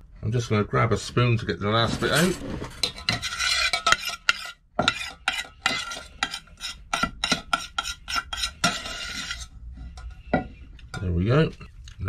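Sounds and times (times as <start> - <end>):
metal spoon scraping saucepan: 1.8 - 11.4.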